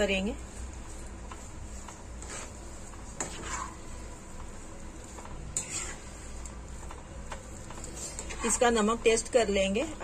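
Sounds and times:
pan sizzling: 0.0 - 10.0
spatula scraping a pan: 1.8 - 4.0, 5.2 - 6.4, 7.8 - 8.8.

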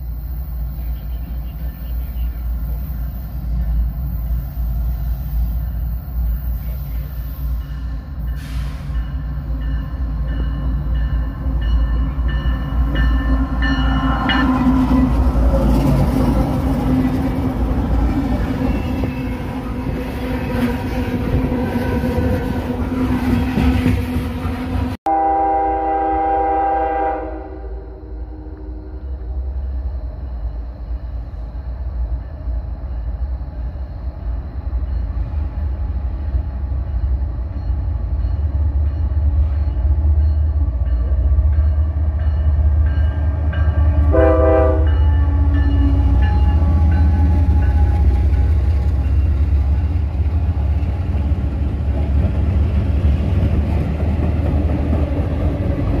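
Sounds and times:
locomotive engine rumble: 0.0 - 25.0
train cars running past: 0.0 - 56.0
train air horn: 8.4 - 9.0, 24.4 - 29.2, 43.9 - 48.0.

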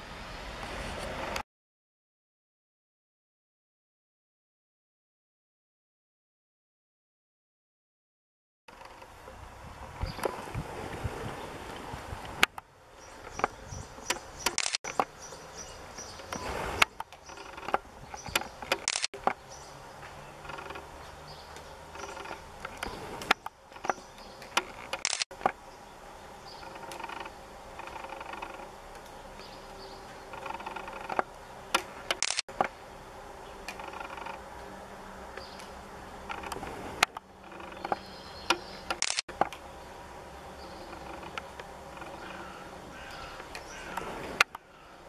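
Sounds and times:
buzz: 8.7 - 39.0.

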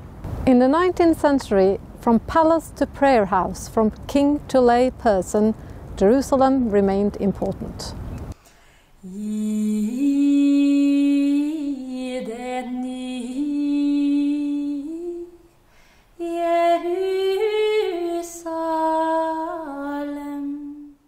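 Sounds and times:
woman singing unaccompanied: 9.0 - 15.5, 16.2 - 21.0.

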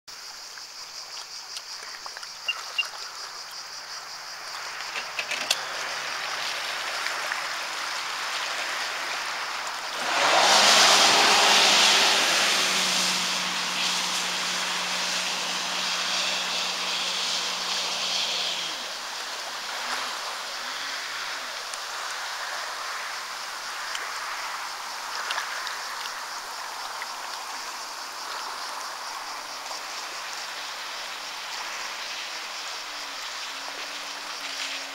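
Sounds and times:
rush of water spray: 0.1 - 34.9
water splashing: 0.5 - 34.9
jet ski engine: 5.0 - 7.2, 9.0 - 21.7.

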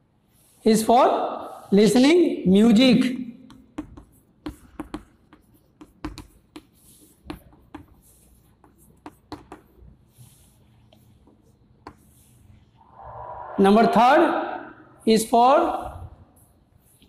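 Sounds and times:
chalk scratching: 0.2 - 2.0, 3.5 - 12.8, 15.0 - 17.0
chalk tapping on blackboard: 3.4 - 12.4.

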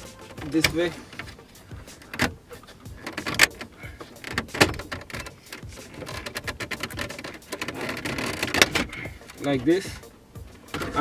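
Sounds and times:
quick clicks and rattles: 3.0 - 9.0.

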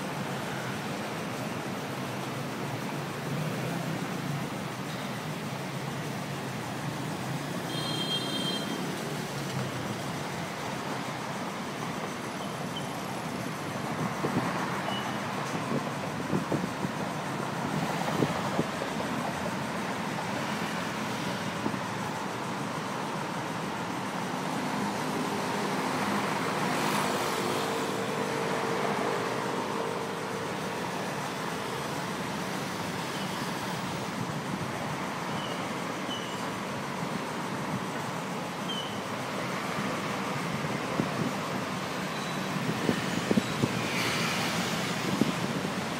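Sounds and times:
dense road traffic: 0.0 - 45.9
steady engine drone: 15.3 - 45.9.

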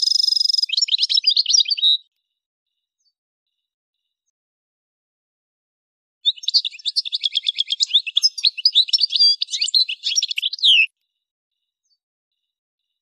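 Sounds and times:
goldfinch twittering song: 0.0 - 2.0, 6.3 - 10.9.

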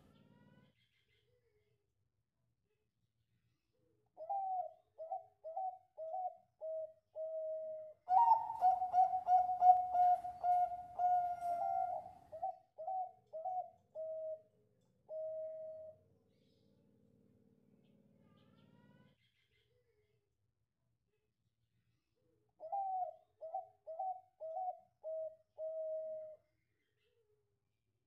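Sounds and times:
dove cooing: 4.2 - 14.5, 15.1 - 16.0, 22.6 - 26.4.

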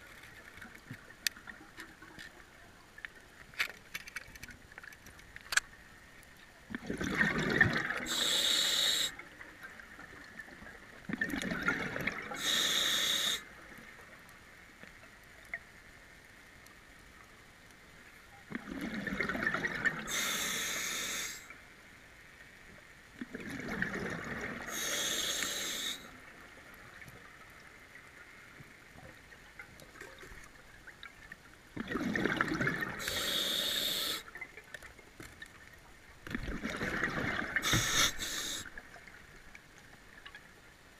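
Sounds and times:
diver breathing through regulator: 8.1 - 9.2, 12.4 - 13.4, 20.1 - 21.5, 24.7 - 26.1, 33.0 - 34.3, 37.6 - 38.7.

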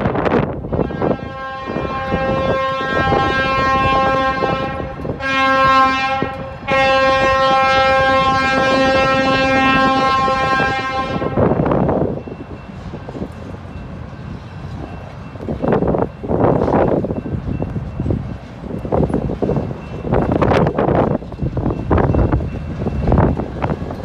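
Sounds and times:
wind gusts on microphone: 0.0 - 24.0
locomotive air horn blasts: 0.6 - 11.7.

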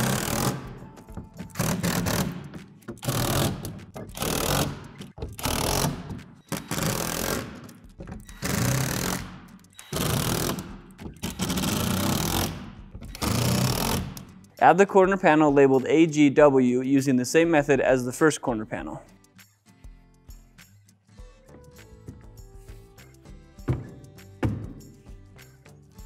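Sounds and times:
impact driver driving screws: 0.0 - 0.8, 1.4 - 14.3.

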